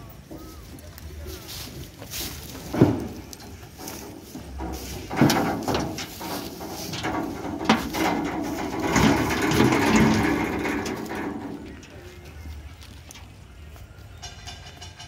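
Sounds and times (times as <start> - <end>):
knocks and clatter from truck bed: 2.5 - 12.2, 14.2 - 15.0.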